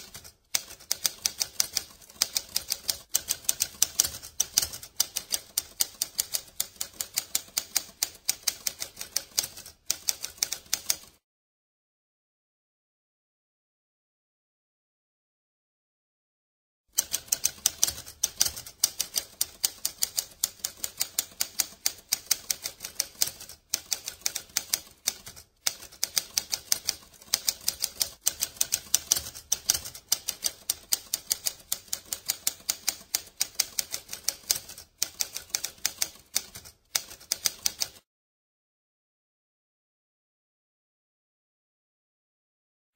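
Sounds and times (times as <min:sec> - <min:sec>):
typewriter keys clacking: 0:00.0 - 0:11.1, 0:17.0 - 0:38.0.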